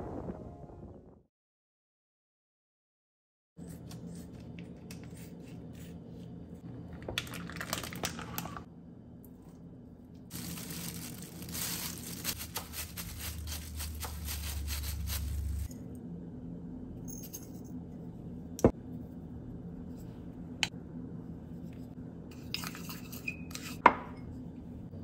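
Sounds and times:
packaging crinkling and tearing: 7.1s - 8.7s, 10.3s - 15.7s
steady low hum: 8.6s - 25.0s.

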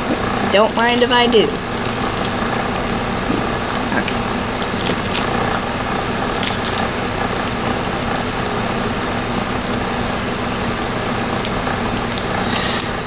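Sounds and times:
droning hum: 0.0s - 13.0s
even hiss: 12.2s - 13.0s.

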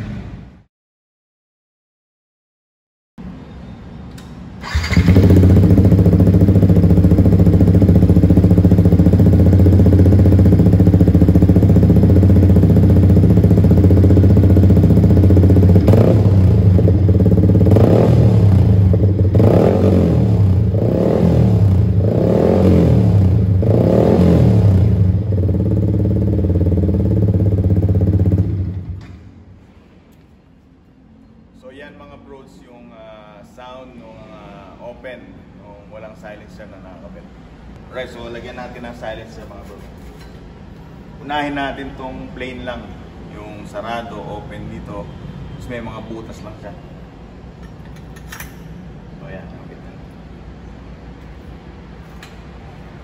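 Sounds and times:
motorcycle engine idling and revving: 4.6s - 29.2s.

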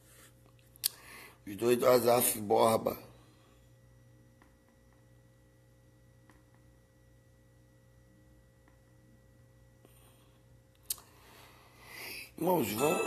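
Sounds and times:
faint electrical hum: 0.0s - 13.0s
thin high tone: 12.4s - 13.0s.

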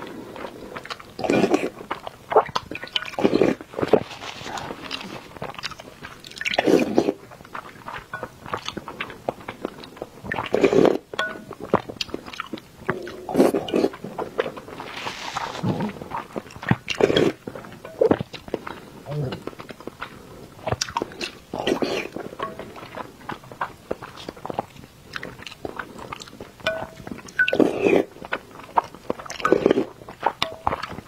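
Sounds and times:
wet chewing and mouth clicks: 0.0s - 31.0s
slurps from a spoon: 12.9s - 20.2s.

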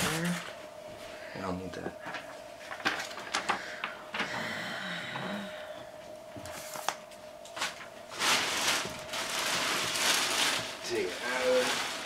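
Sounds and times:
plastic bag crinkling: 6.6s - 12.0s.

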